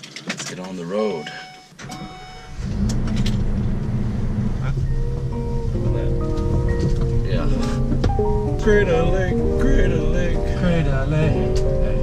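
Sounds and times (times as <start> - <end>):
motorhome engine rumble: 2.2 - 12.0
background music with held notes: 4.9 - 12.0.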